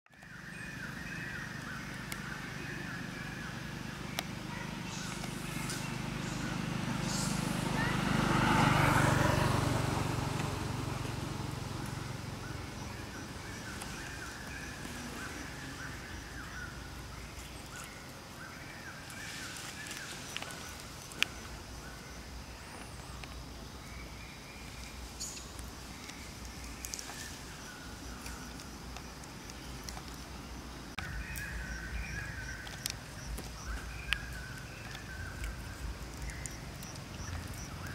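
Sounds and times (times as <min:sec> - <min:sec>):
faint high chirping calls: 0:00.1 - 0:09.5, 0:10.2 - 0:37.9.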